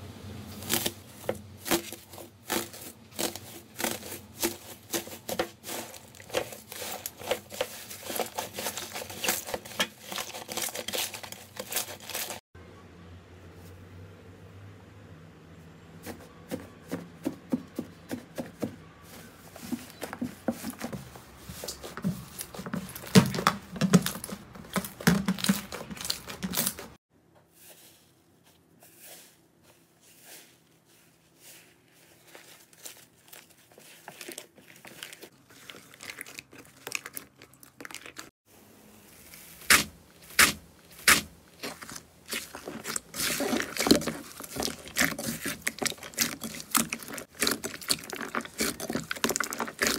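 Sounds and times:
soft squishing of slime: 0.6 - 12.4, 19.0 - 38.4, 39.1 - 49.9
slime crackling and popping: 39.6 - 49.9.

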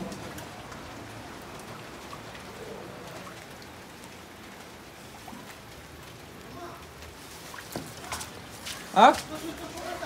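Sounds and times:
raindrops ticking on hard surfaces: 0.0 - 10.0
steady rain hiss: 0.0 - 10.0.

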